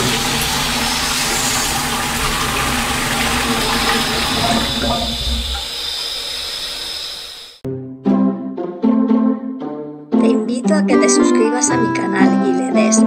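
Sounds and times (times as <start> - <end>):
toilet flushing: 0.0 - 7.6.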